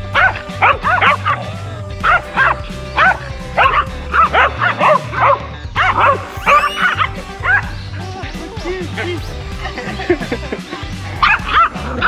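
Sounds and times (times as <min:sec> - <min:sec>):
background music: 0:00.0 - 0:12.0
small dog yapping: 0:02.1 - 0:07.7.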